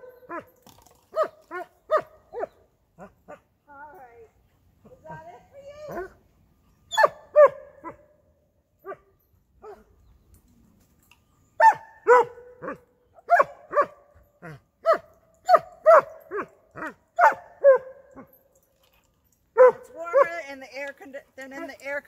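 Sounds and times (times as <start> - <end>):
dog barking: 6.9 - 8.0, 11.6 - 14.0, 14.8 - 17.9, 19.6 - 19.8.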